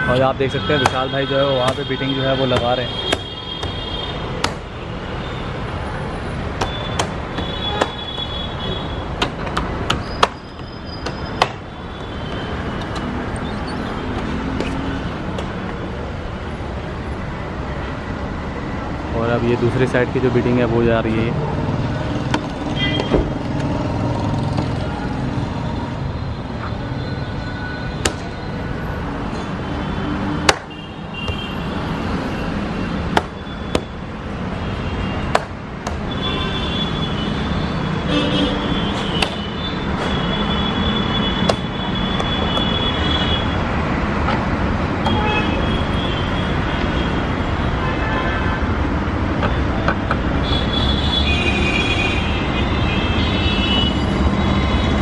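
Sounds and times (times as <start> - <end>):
road traffic noise: 0.0 - 55.0
sharp clicks and knocks: 9.2 - 13.1.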